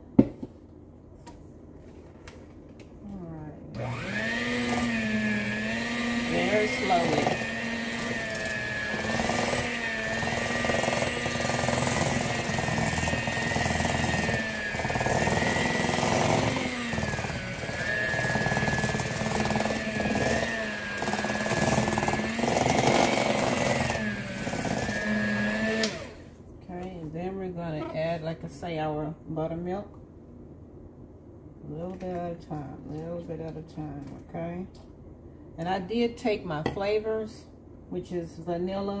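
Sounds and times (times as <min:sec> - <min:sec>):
electric hand mixer whine: 0:03.8 - 0:26.2.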